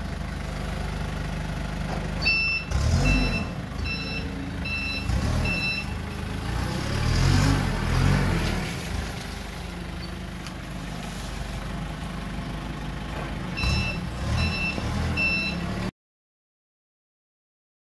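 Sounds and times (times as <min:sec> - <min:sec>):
forklift engine running: 0:00.0 - 0:15.9
reversing alarm beeps: 0:02.2 - 0:06.0, 0:13.6 - 0:15.7.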